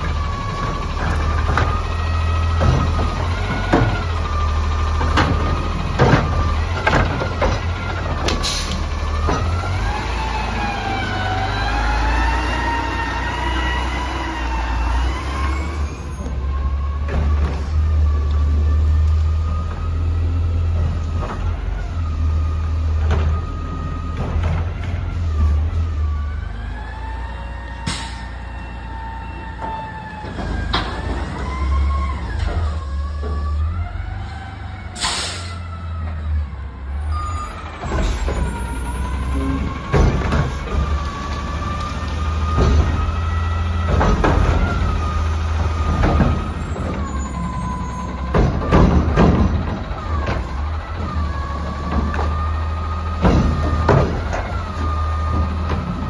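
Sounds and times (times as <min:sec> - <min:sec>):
diesel engine deep rumble: 0:00.0 - 0:56.0
clanks and knocks: 0:00.6 - 0:04.3, 0:05.0 - 0:08.4, 0:29.6 - 0:31.5, 0:37.8 - 0:41.5, 0:42.4 - 0:56.0.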